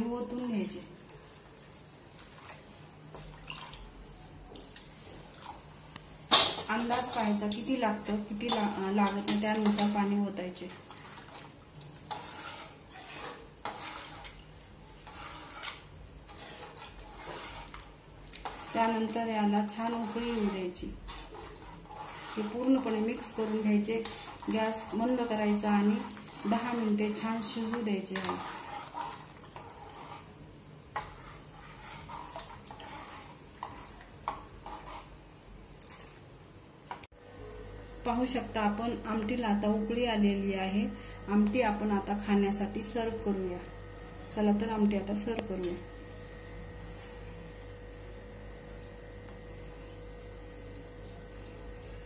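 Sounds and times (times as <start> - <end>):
spoon stirring curry in pot: 6.8 - 30.3, 30.9 - 35.2.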